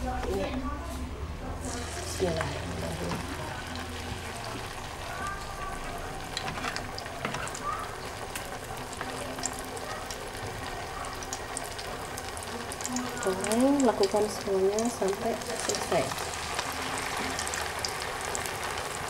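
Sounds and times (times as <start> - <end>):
food sizzling in hot oil: 1.6 - 19.0.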